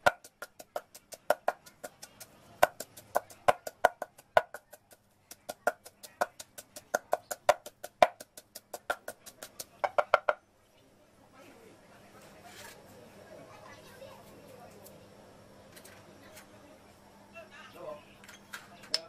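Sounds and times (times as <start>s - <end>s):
pestle pounding in mortar: 0.0s - 10.4s.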